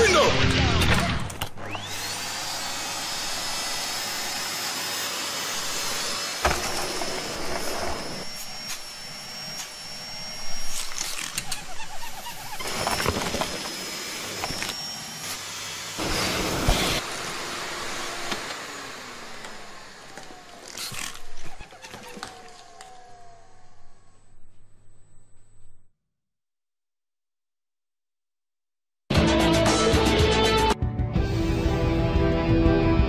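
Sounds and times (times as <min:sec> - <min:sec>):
vacuum cleaner motor whine: 0:01.6 - 0:25.8.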